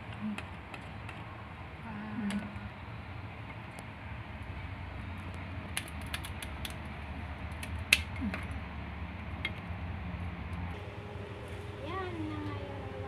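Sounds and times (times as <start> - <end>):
steady low hum: 0.0 - 13.0
scissors cracking lobster shell: 5.7 - 6.9, 7.5 - 8.6.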